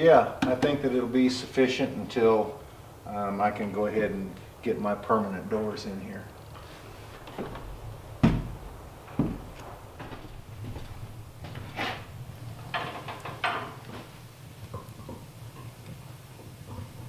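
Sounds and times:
wood stove door clanking: 0:07.2 - 0:09.6, 0:11.4 - 0:14.1
sharp knocks: 0:08.2 - 0:09.5.

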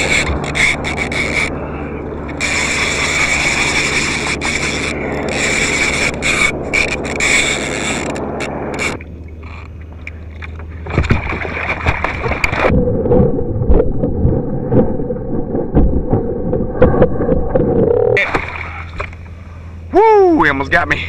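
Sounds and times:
steady hum: 0:00.0 - 0:21.0
shark thrashing and splashing: 0:10.9 - 0:17.0, 0:18.2 - 0:19.0.

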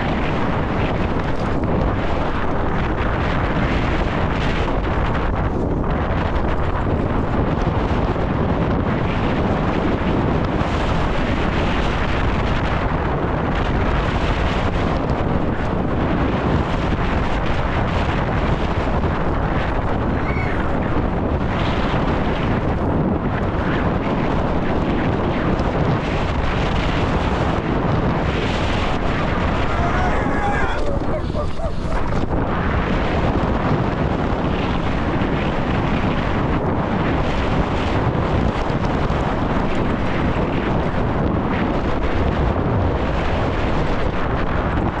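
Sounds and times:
bike rattling: 0:00.0 - 0:09.9
wind rushing over microphone: 0:00.0 - 0:45.0.

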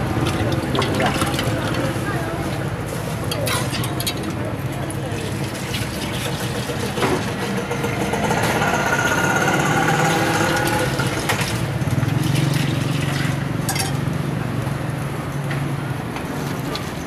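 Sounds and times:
faint indistinct voices: 0:00.0 - 0:11.2.

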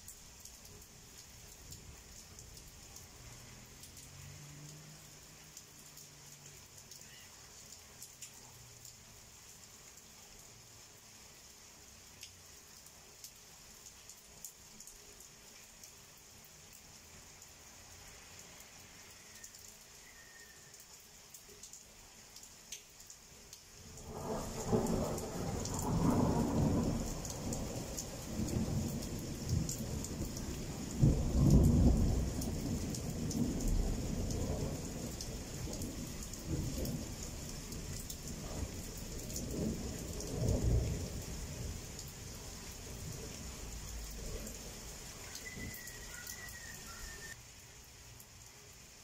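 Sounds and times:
rain hissing: 0:00.0 - 0:49.0
thunder rumbling: 0:24.0 - 0:41.9.

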